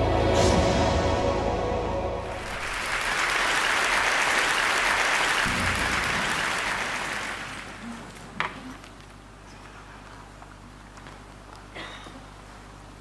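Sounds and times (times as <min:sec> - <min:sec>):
intro theme music: 0:00.0 - 0:03.4, 0:05.4 - 0:07.8
audience applauding: 0:02.3 - 0:08.8.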